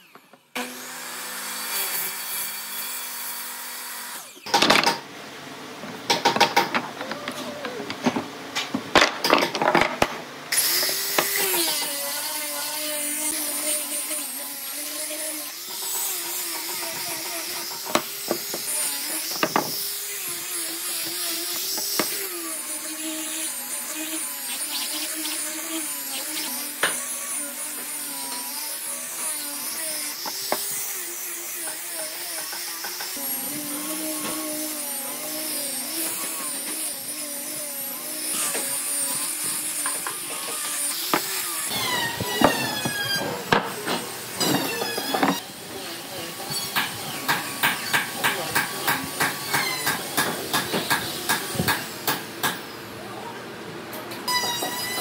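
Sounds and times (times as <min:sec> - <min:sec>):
angle grinder sanding wood: 0:10.6 - 0:51.9.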